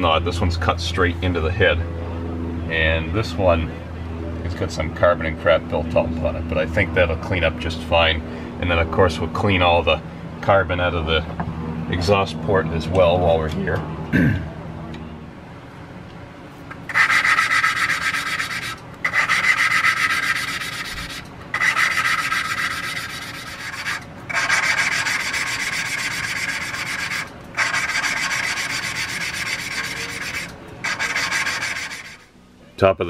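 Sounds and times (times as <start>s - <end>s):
valve lapping gritty rasp: 16.8s - 32.3s.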